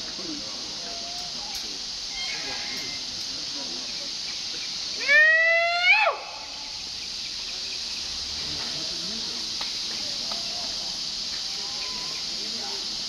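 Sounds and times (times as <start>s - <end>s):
forest insects hissing: 0.0s - 13.0s
monkey call: 0.7s - 6.8s, 11.4s - 12.6s.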